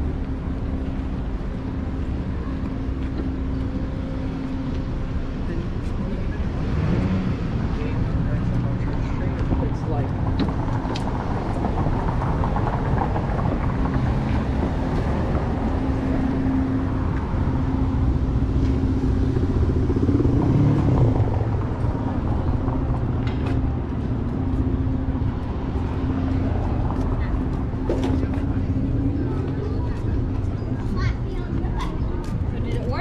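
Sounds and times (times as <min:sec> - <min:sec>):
cars passing on busy street: 0:00.0 - 0:33.0
vehicle passing loudly: 0:06.2 - 0:31.6.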